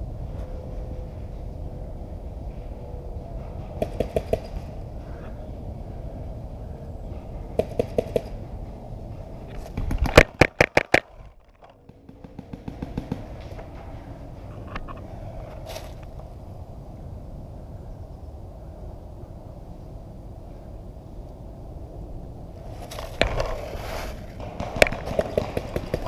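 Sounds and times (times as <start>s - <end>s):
steady low rumble: 0.0s - 26.0s
paintball markers firing: 9.6s - 13.6s, 24.4s - 26.0s.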